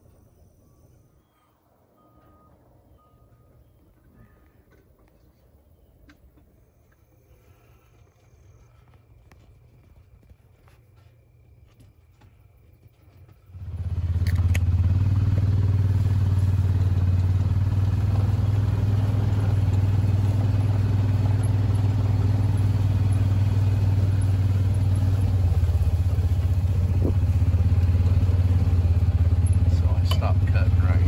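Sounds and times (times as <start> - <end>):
utility vehicle engine running: 12.8 - 31.0.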